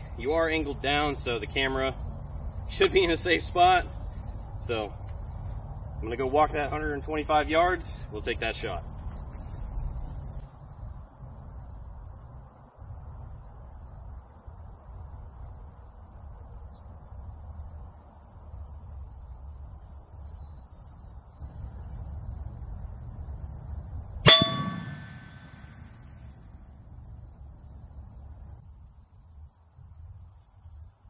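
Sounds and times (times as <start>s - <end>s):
steel plate ringing: 24.2s - 26.3s
rifle shot: 24.3s - 26.1s.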